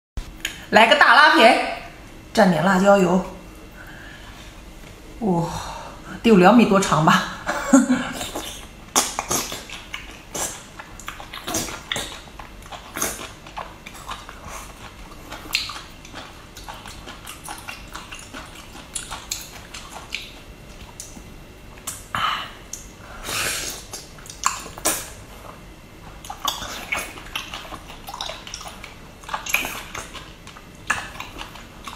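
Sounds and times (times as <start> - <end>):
wet chewing and slurping noodles: 8.2 - 21.2, 22.7 - 31.9.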